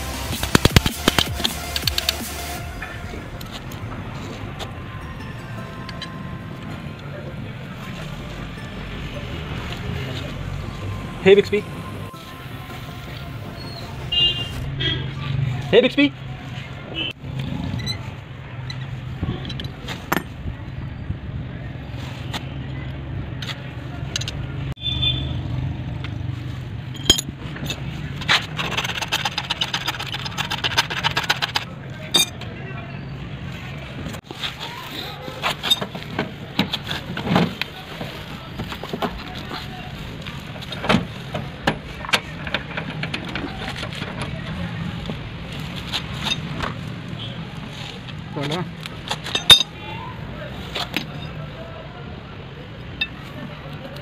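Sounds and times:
low hum of traffic: 0.0 - 54.0
metal tool clicking: 49.2 - 49.7.

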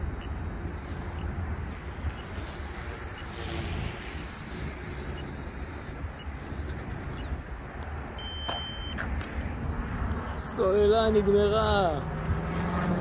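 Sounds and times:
wind rumbling on microphone: 0.0 - 8.2, 9.0 - 13.0
short high beep: 8.2 - 9.0.

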